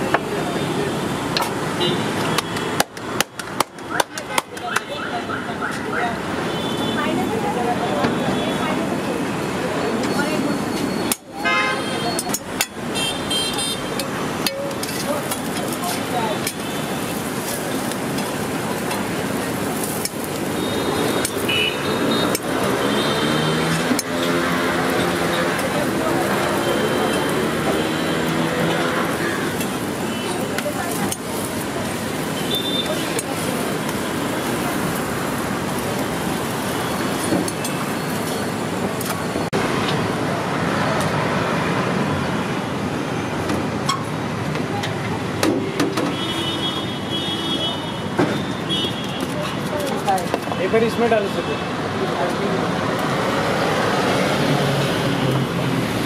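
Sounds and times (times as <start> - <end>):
street noise: 0.0 - 56.0
traffic noise: 0.0 - 56.0
metal spatula scraping on griddle: 14.0 - 20.5.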